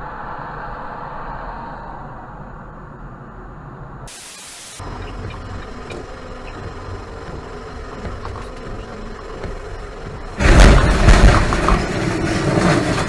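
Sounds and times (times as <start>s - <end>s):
static hiss burst: 4.1s - 5.6s
road and engine rumble: 4.8s - 13.0s.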